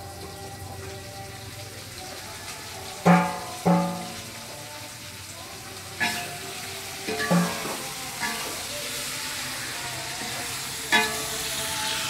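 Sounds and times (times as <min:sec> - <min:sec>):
greens sizzling in wok: 0:00.0 - 0:12.0
ringing metal clang: 0:03.1 - 0:04.2, 0:07.1 - 0:08.4
metal spatula scraping wok: 0:06.0 - 0:12.0.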